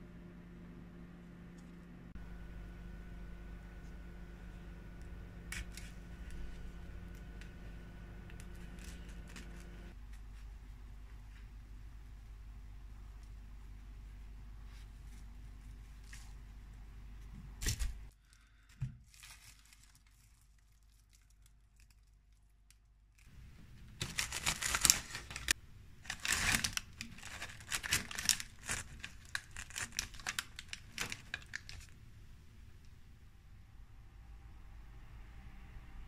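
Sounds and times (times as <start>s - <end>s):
paper crinkling and rustling: 8.3s - 10.5s, 17.6s - 32.0s.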